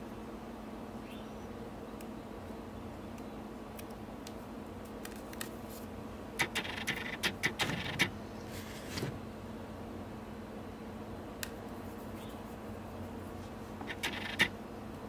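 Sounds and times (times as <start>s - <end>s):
small clicks and crackles of wax: 3.1s - 5.6s.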